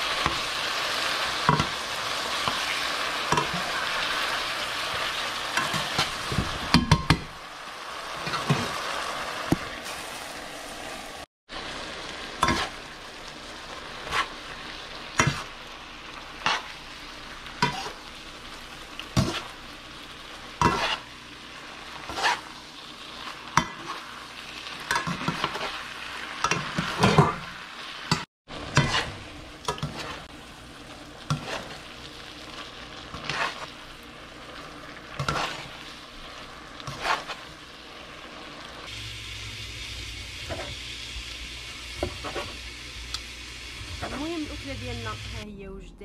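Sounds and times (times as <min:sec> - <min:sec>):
pasta sizzling in skillet: 0:00.0 - 0:45.4
metal tongs clanking on pan: 0:03.3 - 0:03.7.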